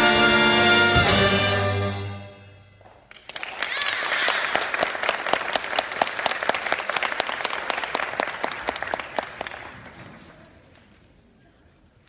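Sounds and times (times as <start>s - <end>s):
audience applauding: 3.0s - 10.6s.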